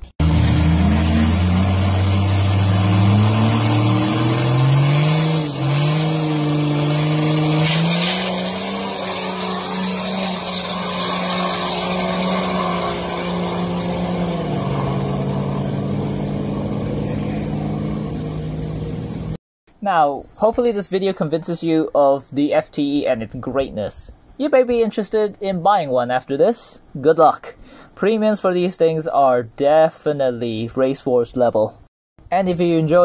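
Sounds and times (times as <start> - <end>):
diesel engine revving through gears: 0.0 - 19.4.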